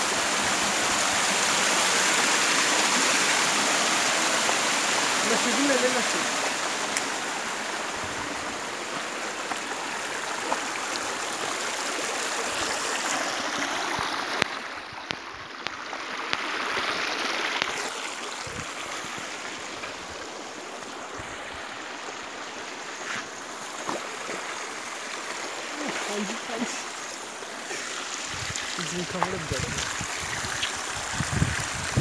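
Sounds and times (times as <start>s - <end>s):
waterfall rushing and splashing: 0.0s - 32.0s.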